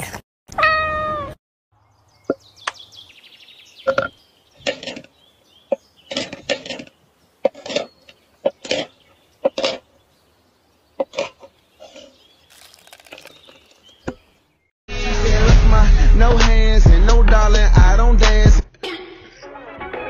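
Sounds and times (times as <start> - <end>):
cat meowing: 0.5 - 1.4.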